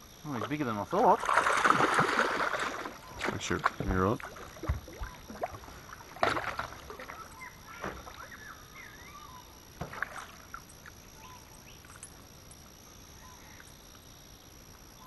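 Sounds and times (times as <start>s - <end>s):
fish splashing and thrashing: 0.3s - 8.3s, 9.8s - 10.9s
faint bird chirps: 2.8s - 5.4s, 6.8s - 9.7s, 10.4s - 12.2s, 12.9s - 13.8s.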